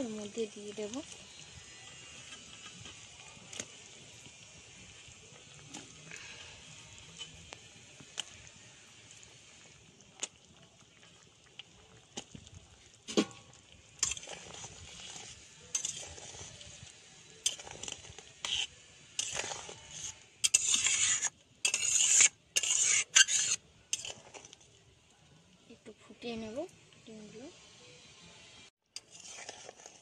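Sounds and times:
curry bubbling: 0.0s - 24.9s, 29.0s - 30.0s
spatula scraping a metal pan: 0.3s - 4.4s, 5.0s - 9.2s, 14.0s - 24.6s, 29.0s - 30.0s.

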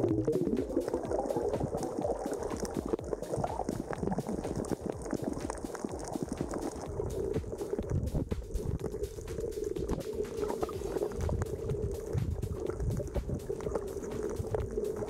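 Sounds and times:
muffled underwater bubbling: 0.0s - 15.0s
small clicks and crackles: 0.1s - 15.0s.

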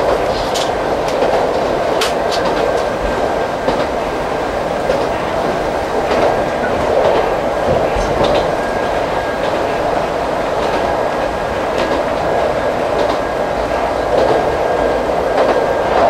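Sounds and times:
faint clicks over rail joints: 0.0s - 2.9s
train wheels rumbling on track: 0.0s - 16.0s.

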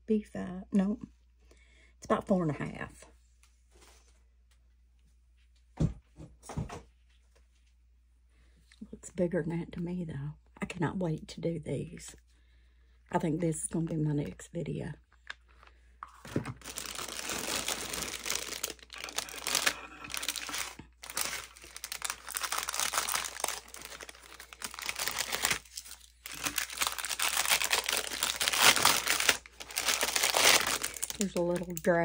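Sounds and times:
plastic wrap crinkling and tearing: 15.4s - 32.0s.

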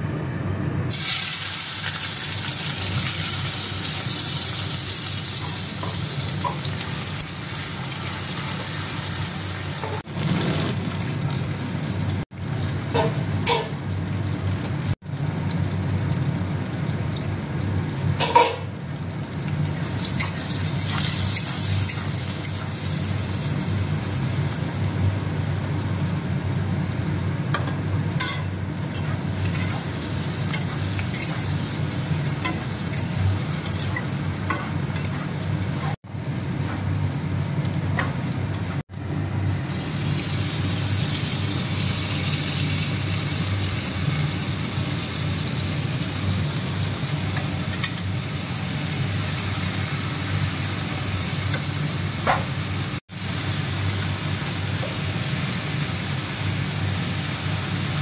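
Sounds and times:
onions frying in oil: 0.9s - 58.0s.

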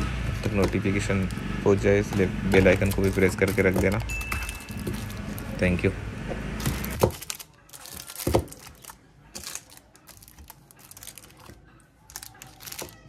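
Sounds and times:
plastic bags crinkling: 2.0s - 5.9s, 6.6s - 13.0s.

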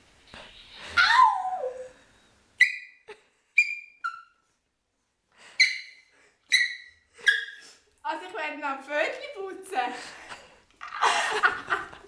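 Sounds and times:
small dog yelping: 5.6s - 7.6s.

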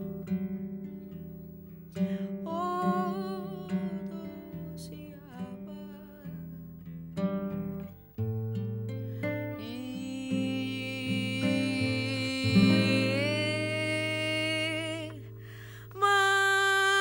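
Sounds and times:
acoustic guitar strumming: 0.0s - 17.0s
person singing: 2.0s - 6.5s, 9.4s - 17.0s.

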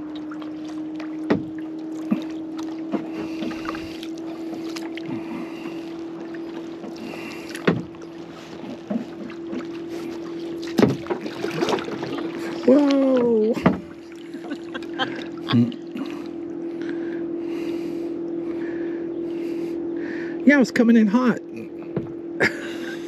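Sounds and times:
paddle splashing in water: 0.0s - 16.5s
steady low hum: 0.0s - 23.0s
paddle knocking on kayak hull: 0.1s - 14.1s.

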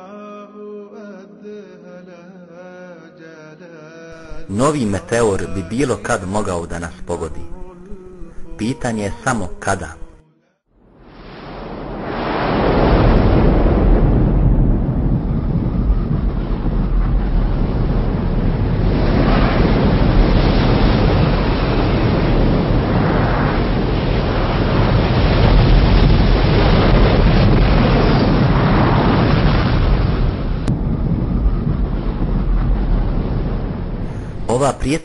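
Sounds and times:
loud low rumble: 10.8s - 34.9s.

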